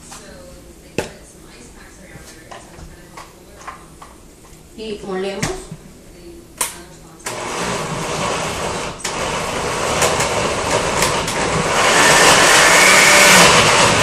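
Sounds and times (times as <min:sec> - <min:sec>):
blender motor grinding: 0:07.3 - 0:14.0.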